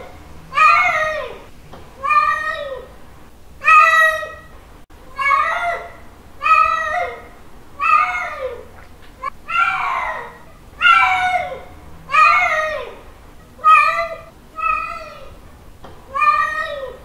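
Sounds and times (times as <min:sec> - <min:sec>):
cat meowing: 0:00.0 - 0:01.4, 0:09.2 - 0:13.0, 0:13.6 - 0:15.4, 0:16.1 - 0:17.0.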